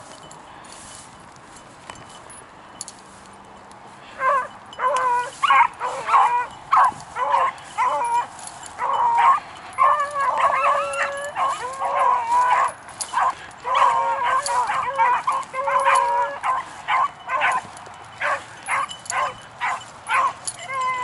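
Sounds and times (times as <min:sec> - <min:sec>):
hounds baying: 0:04.0 - 0:21.0.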